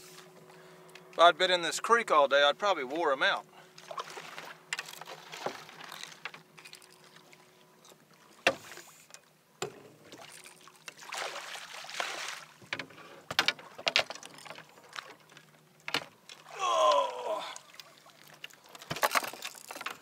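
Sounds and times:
water splashing: 3.8 - 9.0, 10.0 - 12.6, 16.3 - 19.8.

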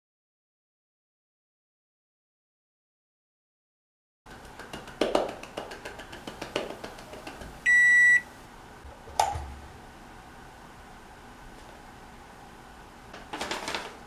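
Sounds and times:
high electronic beep: 7.7 - 8.2.

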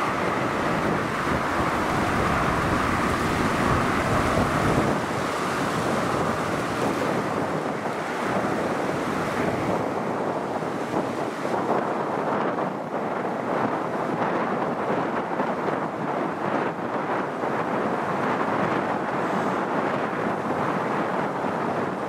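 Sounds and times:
hissing band sinking in pitch: 0.0 - 5.6
jet engine noise: 0.0 - 22.0
wind buffeting microphone: 0.0 - 22.0.

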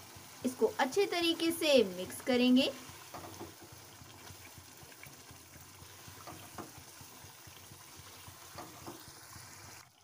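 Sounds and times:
spatula knocking on pan: 3.1 - 3.8, 6.2 - 6.9, 8.5 - 9.1.

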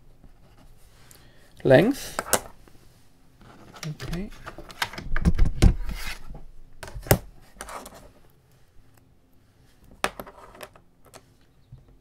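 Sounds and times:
ruler and pencil rubbing and clattering: 5.6 - 6.3, 7.1 - 8.2, 10.0 - 11.3.

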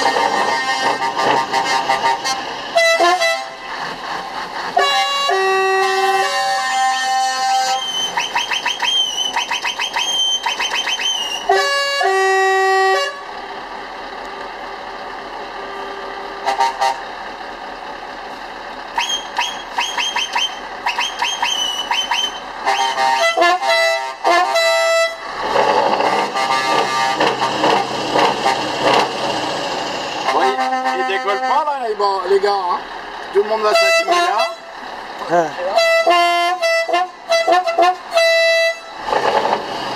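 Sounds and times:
air horn chords: 0.0 - 3.7, 4.8 - 8.2, 11.4 - 13.3, 15.6 - 17.0, 22.0 - 25.2, 26.2 - 27.4, 30.2 - 31.8, 33.6 - 34.7, 35.6 - 39.0
high-pitched horn toots: 0.0 - 3.7, 4.8 - 13.3, 15.6 - 17.0, 19.0 - 25.2, 26.0 - 29.0, 30.2 - 31.8, 33.6 - 34.7, 35.3 - 39.0
truck cab hum: 0.0 - 39.9.

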